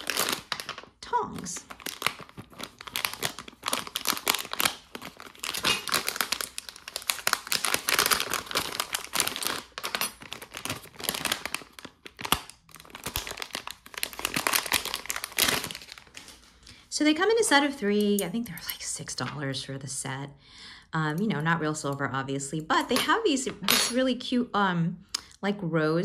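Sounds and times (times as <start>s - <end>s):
plastic bag crinkling: 0.0s - 16.7s.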